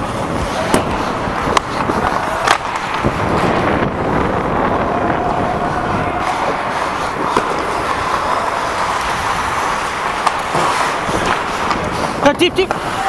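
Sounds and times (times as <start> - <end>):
skates scraping on ice: 0.0 - 13.0
stick hitting puck: 0.6 - 3.9, 6.2 - 13.0.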